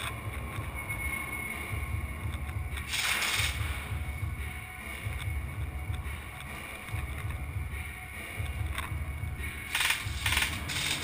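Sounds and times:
low rumbling noise: 0:00.0 - 0:11.0
airsoft gun fire: 0:02.9 - 0:03.7, 0:09.7 - 0:11.0.

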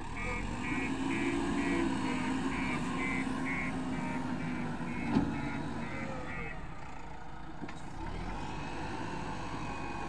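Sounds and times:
diesel engine running: 0:00.0 - 0:10.0
reversing alarm beeping: 0:00.2 - 0:06.6.

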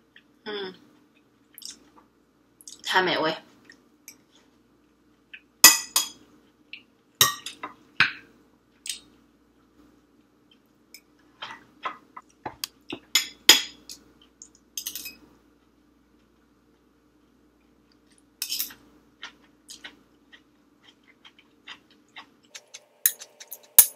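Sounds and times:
spoon clinking against glass bowl: 0:23.0 - 0:23.9.

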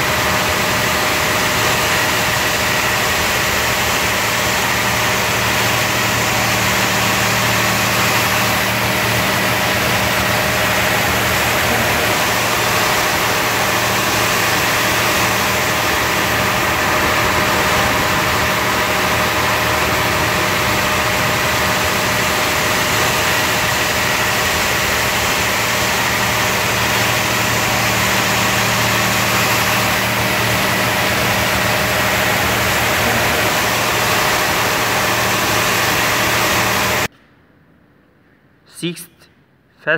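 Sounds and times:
car wash machinery hum: 0:00.0 - 0:37.1
water jets spraying on car: 0:00.0 - 0:37.1.

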